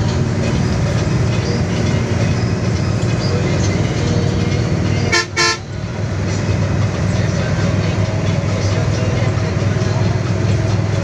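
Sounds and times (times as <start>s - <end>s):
bus engine and road noise: 0.0s - 11.0s
bus horn toots: 4.8s - 5.8s.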